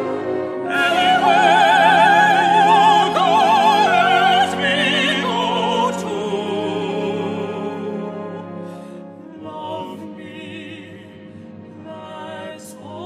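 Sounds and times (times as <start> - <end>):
orchestral accompaniment: 0.0 - 13.0
soprano singing with vibrato: 0.6 - 8.1.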